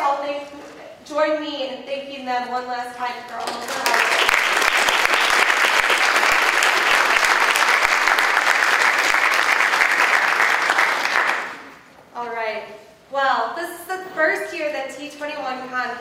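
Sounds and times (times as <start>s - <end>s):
audience applauding: 3.5s - 11.7s.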